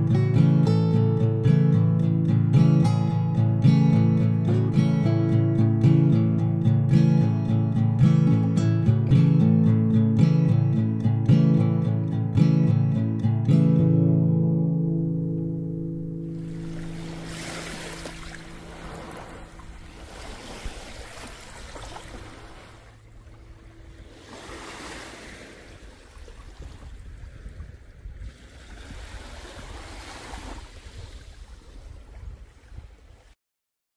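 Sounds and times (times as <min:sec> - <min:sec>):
small waves washing on sand: 0:16.3 - 0:33.4
wind rumbling on microphone: 0:16.3 - 0:33.4.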